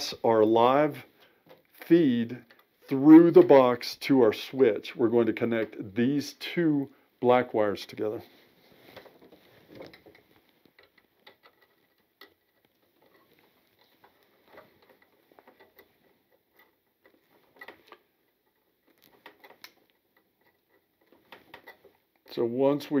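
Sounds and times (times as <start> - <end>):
pliers twisting wires: 9.8 - 22.3.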